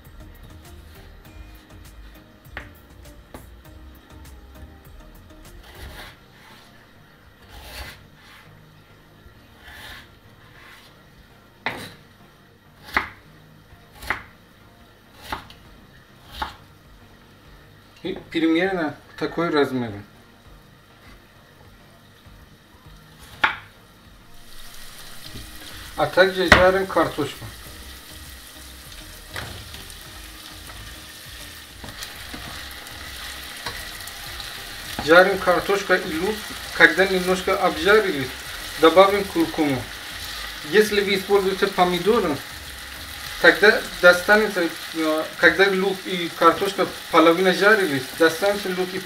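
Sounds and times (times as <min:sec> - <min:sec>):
knife cutting potato on board: 0:05.5 - 0:06.7, 0:07.4 - 0:08.5, 0:11.6 - 0:12.0, 0:12.8 - 0:13.2, 0:13.9 - 0:14.3, 0:15.2 - 0:15.6, 0:16.2 - 0:16.6, 0:23.2 - 0:23.7
spatula scraping a pan: 0:05.6 - 0:06.8, 0:09.6 - 0:11.0
potatoes sizzling in a pan: 0:15.1 - 0:49.0.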